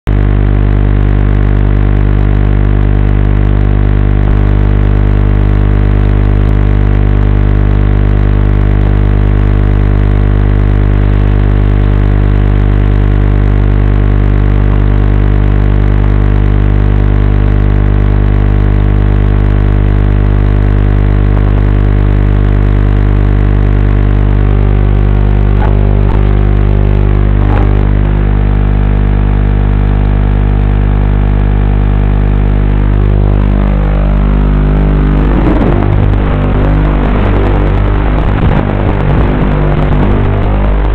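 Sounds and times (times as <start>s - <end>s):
quadcopter buzzing: 24.0s - 28.8s, 32.9s - 40.9s.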